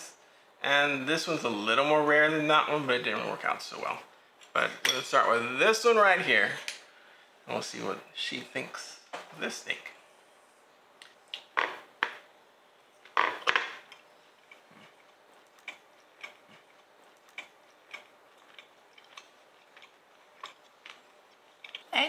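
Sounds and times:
person chewing: 13.8 - 21.9.

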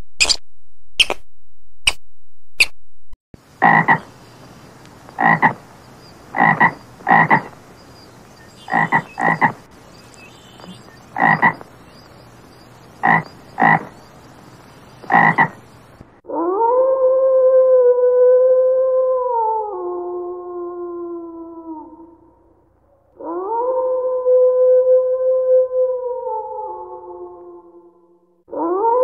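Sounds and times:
toad croaking: 3.6 - 16.0.

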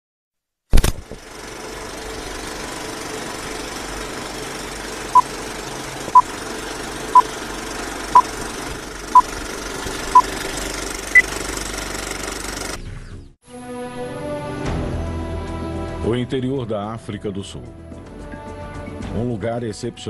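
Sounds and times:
film projector clatter: 0.8 - 12.8.

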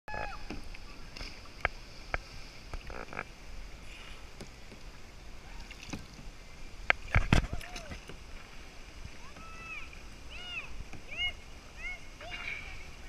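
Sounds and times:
water lapping against hull: 0.3 - 13.0.

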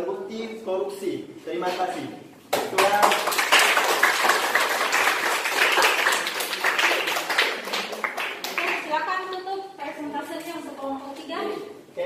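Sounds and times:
group clapping: 2.5 - 9.4.

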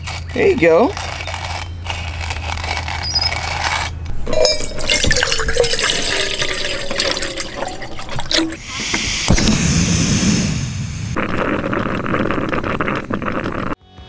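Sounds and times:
water pouring into metal pot: 4.3 - 8.6.

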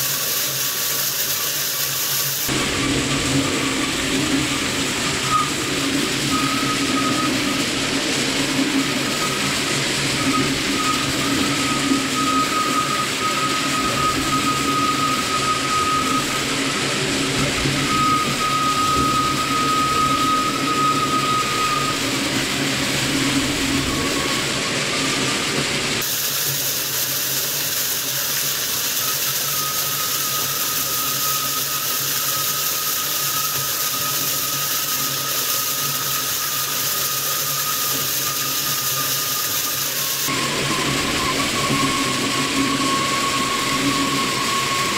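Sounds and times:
shredder shredding foil: 25.2 - 40.8.

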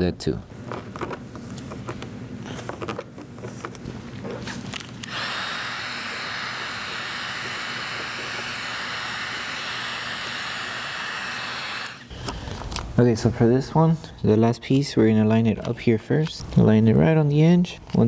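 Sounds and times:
heat gun fan hissing: 5.0 - 12.5.

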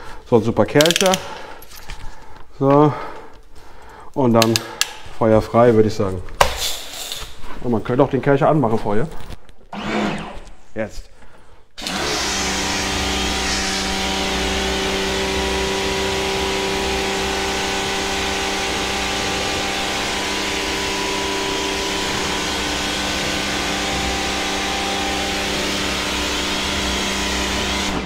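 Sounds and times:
pressure washer motor humming: 11.8 - 28.0.

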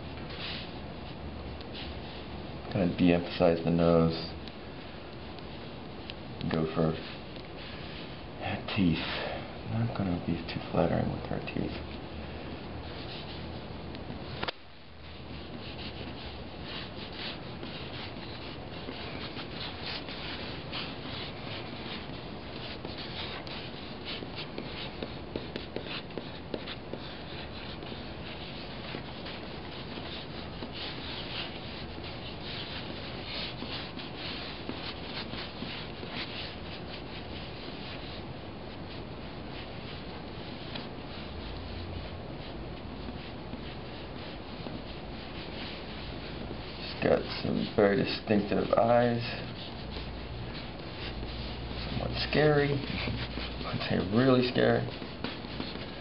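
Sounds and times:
pens scratching on paper: 12.8 - 56.0.

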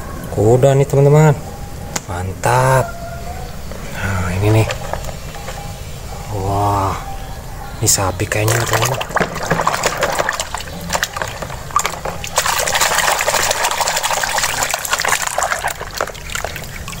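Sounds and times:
water sloshing and splashing: 8.3 - 17.0.

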